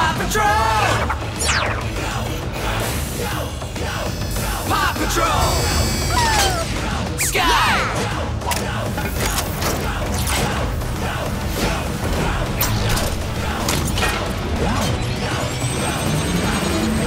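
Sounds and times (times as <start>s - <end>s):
upbeat music: 0.0s - 17.0s
rising mechanical whine: 1.1s - 2.8s
cartoon mechanical clicks and clanks: 8.4s - 10.6s.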